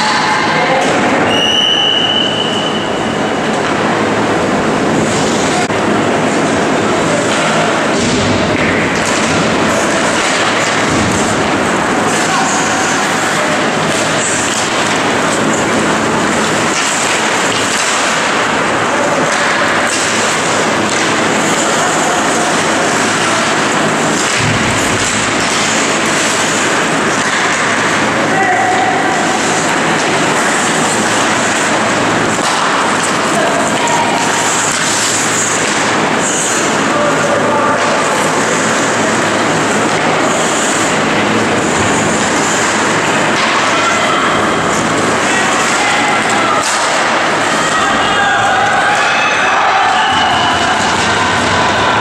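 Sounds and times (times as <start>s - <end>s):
arena noise: 0.0s - 52.0s
hockey sticks hitting puck: 0.0s - 52.0s
skate blades scraping ice: 8.9s - 47.6s.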